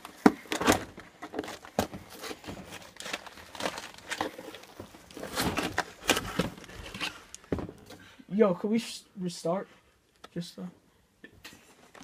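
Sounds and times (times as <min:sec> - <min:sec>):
cardboard crinkling and scraping: 0:00.0 - 0:07.8.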